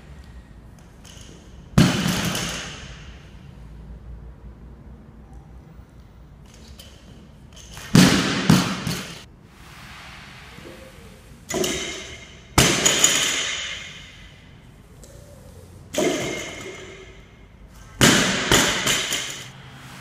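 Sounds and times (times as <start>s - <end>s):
barbell thudding on rubber floor: 11.5s - 14.2s, 16.0s - 17.2s, 18.0s - 19.4s.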